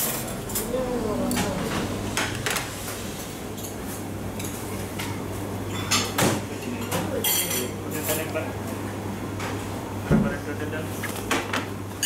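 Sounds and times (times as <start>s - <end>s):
kitchen low hum: 0.0s - 12.0s
plates and utensils clinking: 3.6s - 8.4s.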